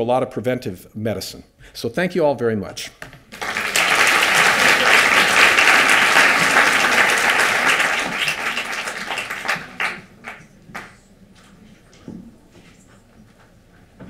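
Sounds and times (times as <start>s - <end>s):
audience applauding: 3.3s - 10.9s.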